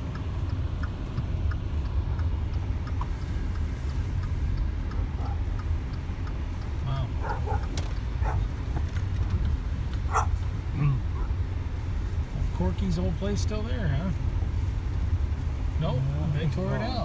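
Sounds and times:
engine and road noise rumble: 0.0s - 17.0s.

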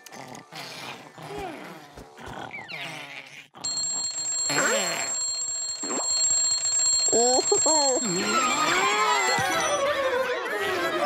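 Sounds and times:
alarm clock bell ringing: 3.6s - 10.0s.

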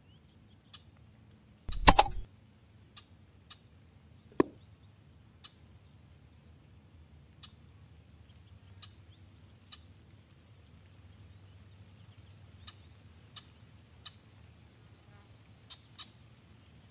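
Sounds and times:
bird chips: 1.7s - 2.3s.

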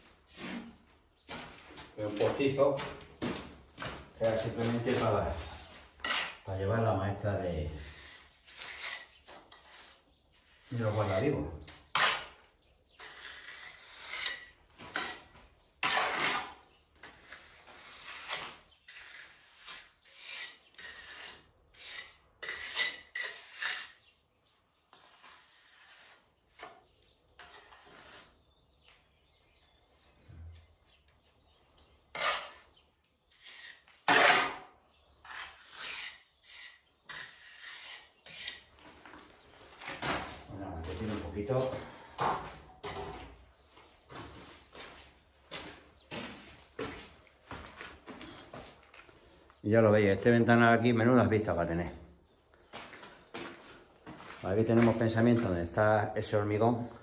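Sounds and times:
trowel scraping render on wall: 2.1s - 24.1s, 24.9s - 28.5s, 31.6s - 39.2s.

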